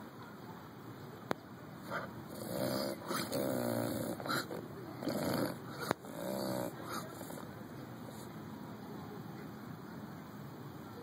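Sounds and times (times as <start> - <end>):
dog snorting: 1.8 - 7.5.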